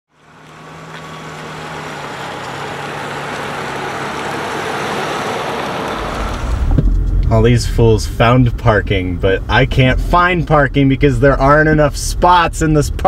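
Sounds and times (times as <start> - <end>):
car engine and road noise: 0.1 - 13.0.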